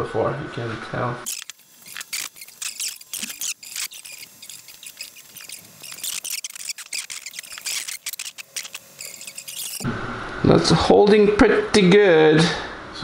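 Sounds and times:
screwdriver clicking and scraping metal: 1.3s - 9.8s.

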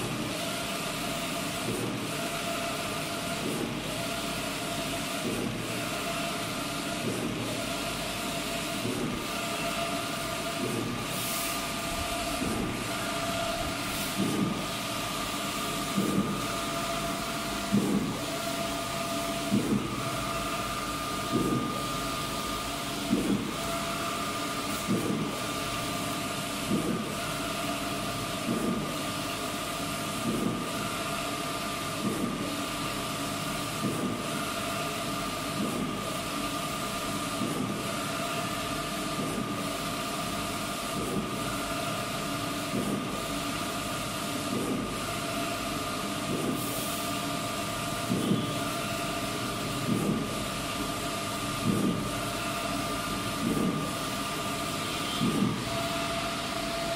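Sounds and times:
printer mechanical hum: 0.0s - 56.9s
printer clunk: 55.2s - 55.9s.

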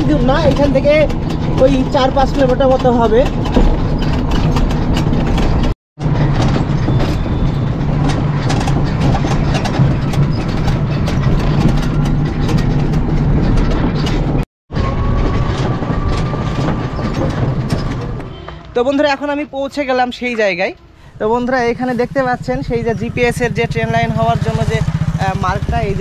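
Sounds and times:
wind rushing over microphone: 0.0s - 18.8s
motorcycle engine running: 20.8s - 26.0s.

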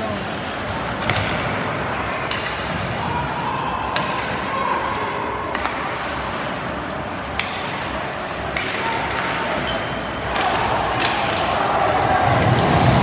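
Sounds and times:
hockey stick hitting puck: 0.9s - 3.0s, 3.9s - 4.5s, 5.5s - 13.0s.

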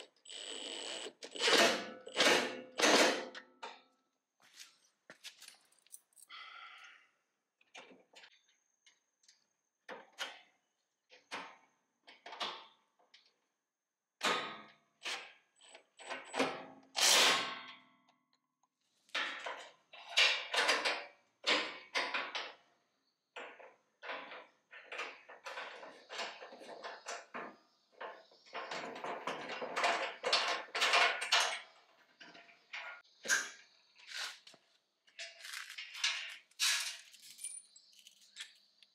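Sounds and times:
metal parts clinking and scraping: 35.2s - 38.8s.

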